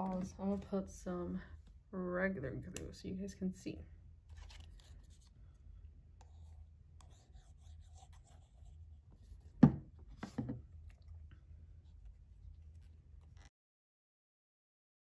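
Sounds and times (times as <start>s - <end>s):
low steady hum: 0.0s - 13.5s
paper rustling: 4.3s - 5.3s
glue bottle knocking on table: 9.6s - 10.6s.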